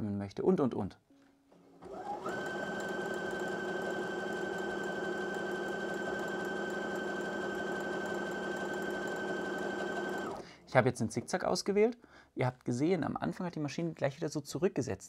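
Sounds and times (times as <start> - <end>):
sewing machine running: 1.8 - 10.4.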